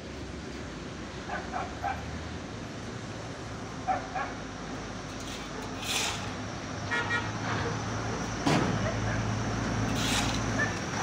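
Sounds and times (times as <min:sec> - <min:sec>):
dog barking: 0:03.9 - 0:04.4.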